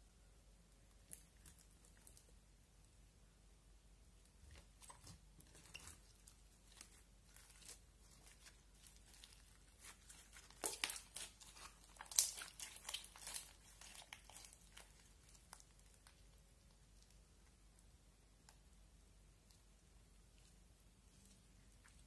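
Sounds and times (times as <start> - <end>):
slime crackling and popping: 4.8 - 17.2.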